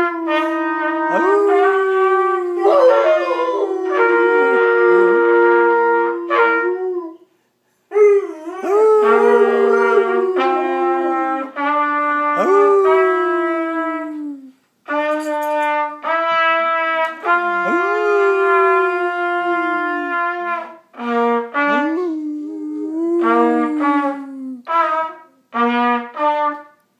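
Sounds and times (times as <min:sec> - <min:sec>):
brass instrument playing held notes: 0:00.0 - 0:07.1, 0:07.9 - 0:26.8
dog howling: 0:01.1 - 0:05.6, 0:07.9 - 0:11.5, 0:21.8 - 0:24.6.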